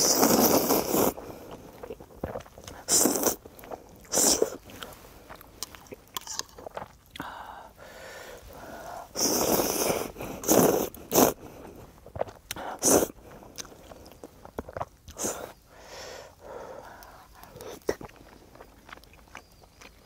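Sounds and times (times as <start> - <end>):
person slurping noodles: 0.0 - 6.9, 8.5 - 14.0
person chewing: 0.0 - 20.0.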